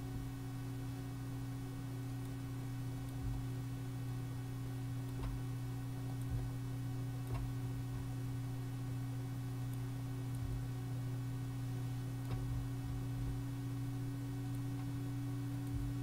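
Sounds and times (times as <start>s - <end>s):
steady electrical hum: 0.0s - 16.0s
computer mouse clicking: 12.2s - 13.0s.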